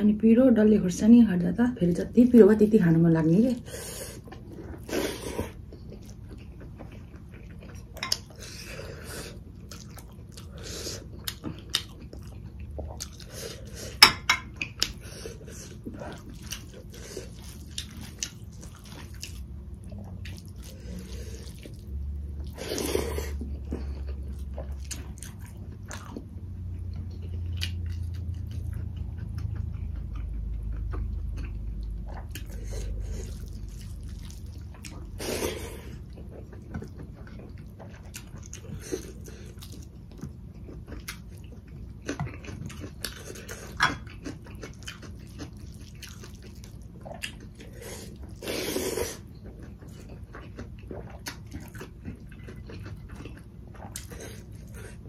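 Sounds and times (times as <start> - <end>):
chewing and wet mouth noises: 3.5 - 55.0.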